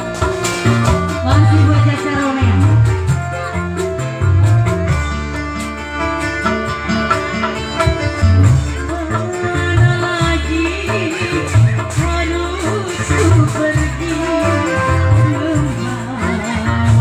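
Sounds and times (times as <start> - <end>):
bass line: 0.0 - 17.0
live band music: 0.0 - 17.0
woman singing: 1.2 - 3.0, 8.8 - 17.0.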